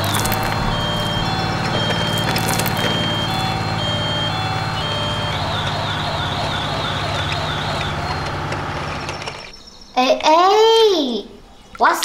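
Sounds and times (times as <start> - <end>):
toy fire truck siren: 0.0 - 9.5.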